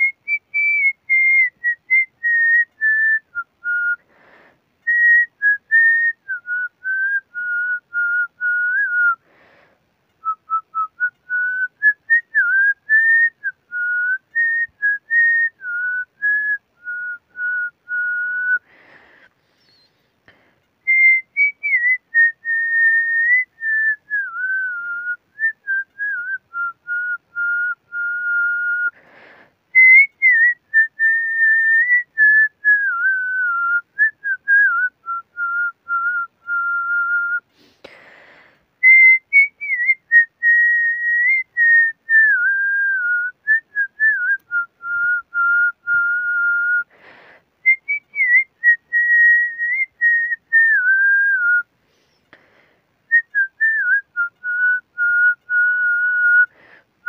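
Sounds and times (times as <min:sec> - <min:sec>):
man whistling a melody: 0:00.0 - 0:04.0, 0:04.8 - 0:09.3, 0:10.2 - 0:20.0, 0:20.8 - 0:37.7, 0:38.8 - 0:51.7, 0:53.1 - 0:56.8
quick breaths: 0:04.0 - 0:04.8, 0:09.2 - 0:10.1, 0:18.6 - 0:20.8, 0:28.9 - 0:29.8, 0:37.4 - 0:38.8, 0:46.8 - 0:47.7, 0:51.7 - 0:53.1, 0:56.5 - 0:57.0.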